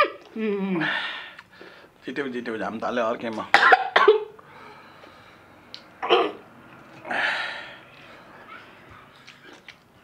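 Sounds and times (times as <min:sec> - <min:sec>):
person coughing: 0:03.5 - 0:04.3, 0:06.0 - 0:06.4.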